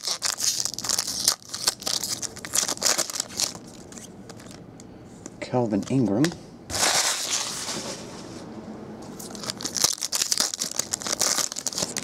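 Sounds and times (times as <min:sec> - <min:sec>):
foil wrapper crinkling: 0:00.0 - 0:04.6, 0:09.2 - 0:12.0.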